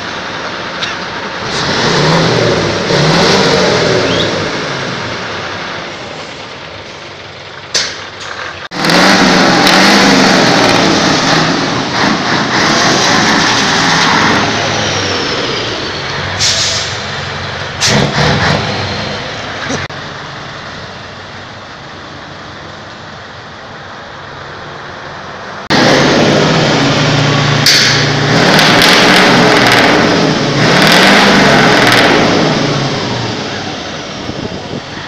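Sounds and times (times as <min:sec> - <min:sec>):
diesel truck engine revving: 0:00.0 - 0:35.0
short sharp air hisses: 0:16.4 - 0:17.1.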